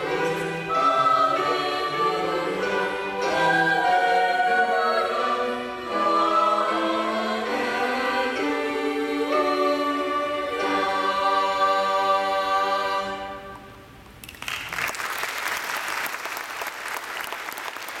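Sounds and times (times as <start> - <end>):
choir holding a chord: 0.0 - 13.8
audience applause: 14.3 - 18.0.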